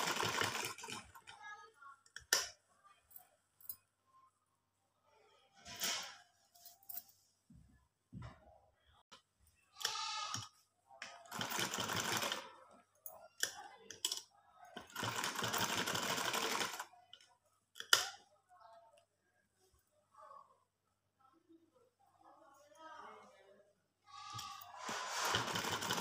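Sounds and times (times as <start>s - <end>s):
sewing machine stitching: 0.0s - 1.3s, 11.3s - 12.4s, 14.8s - 16.9s, 24.8s - 26.0s.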